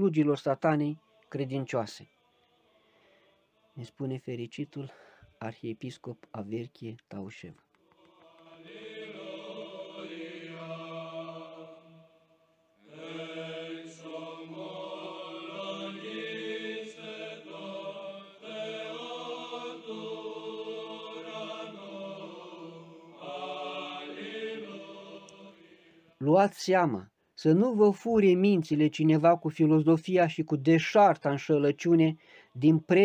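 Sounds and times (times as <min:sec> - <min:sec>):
choral chant: 0:00.8 - 0:05.7, 0:07.8 - 0:26.2.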